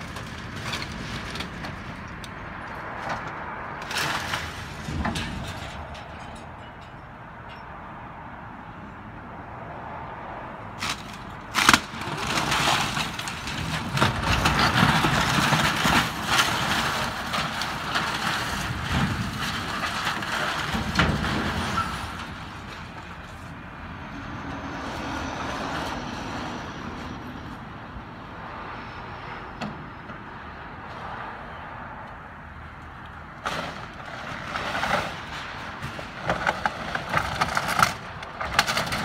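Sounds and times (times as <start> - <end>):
debris crashing down: 3.8 - 6.9, 10.8 - 22.9.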